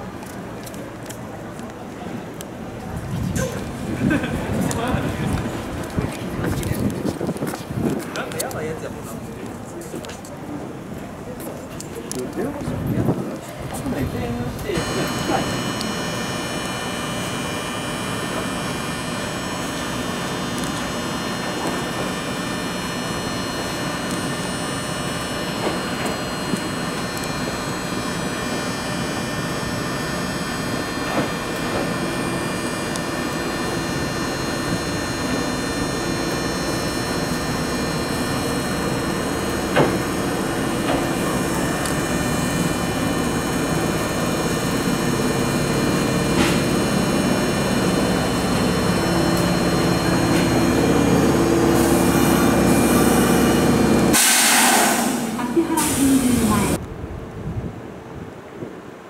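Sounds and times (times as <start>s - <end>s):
parked train equipment hum: 0.0s - 59.0s
train pulling into platform: 0.0s - 59.0s.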